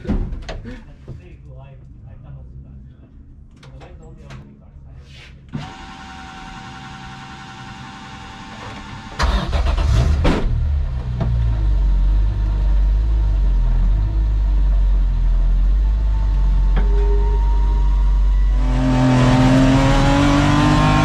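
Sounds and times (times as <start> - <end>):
car engine starting and idling: 5.6 - 21.0.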